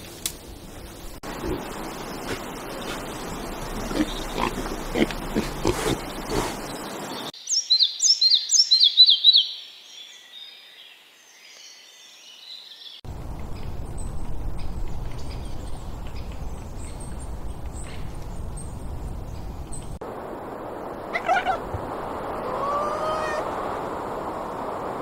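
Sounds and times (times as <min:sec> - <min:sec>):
songbird singing: 0:00.0 - 0:25.0
steady rushing noise: 0:18.8 - 0:25.0.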